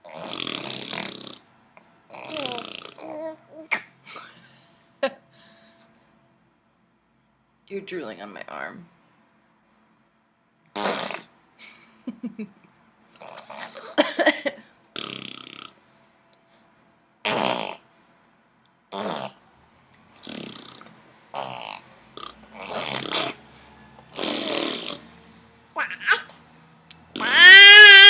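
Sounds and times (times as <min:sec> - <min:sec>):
baby blowing raspberries: 0:00.0 - 0:03.9, 0:10.7 - 0:11.3, 0:20.1 - 0:25.1.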